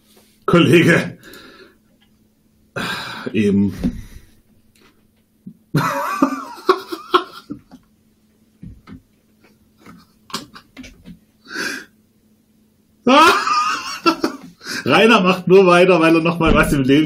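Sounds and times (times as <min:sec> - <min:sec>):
faint electrical hum: 0:00.0 - 0:17.0
short breaths: 0:01.2 - 0:01.8
person laughing: 0:05.8 - 0:07.8, 0:09.8 - 0:10.9, 0:13.1 - 0:14.8.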